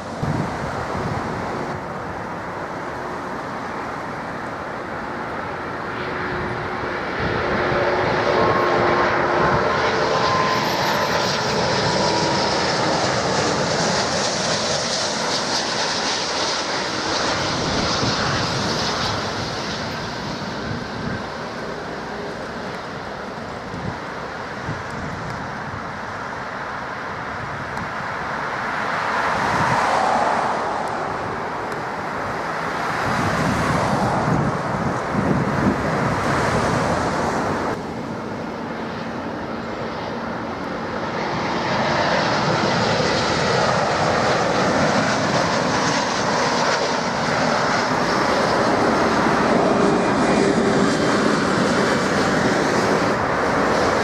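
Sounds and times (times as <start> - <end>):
jet airliner engines: 0.0 - 54.0.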